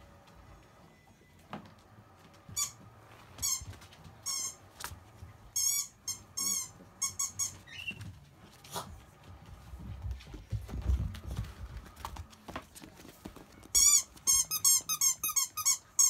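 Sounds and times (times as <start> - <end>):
puppies squeaking: 5.6 - 8.1, 13.7 - 16.0.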